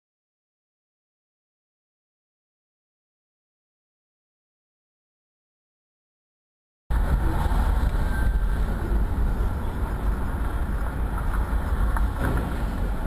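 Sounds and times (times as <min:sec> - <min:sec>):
car engine and road rumble: 0:06.9 - 0:13.0.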